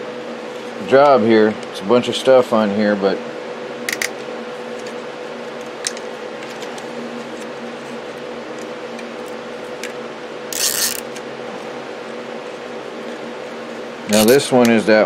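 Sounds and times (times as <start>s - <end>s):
steady hum: 0.0s - 15.0s
zip tie ratcheting: 10.5s - 11.2s.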